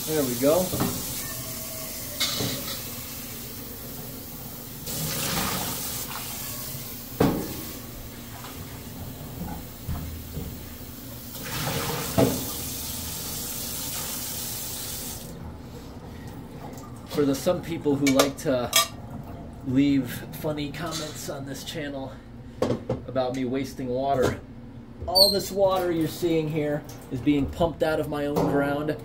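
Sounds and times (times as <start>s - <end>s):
water gushing from a pot: 4.8s - 6.5s, 11.3s - 15.3s
faucet running into steel sink: 4.8s - 6.8s, 11.3s - 15.3s.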